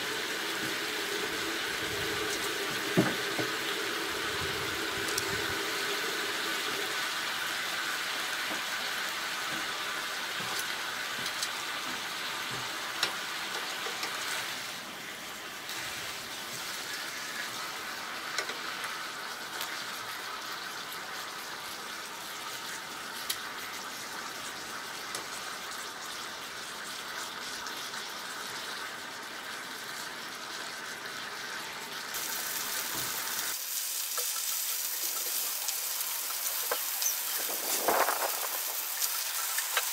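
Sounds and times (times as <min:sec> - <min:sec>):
chicken sizzling on griddle: 0:00.0 - 0:39.9.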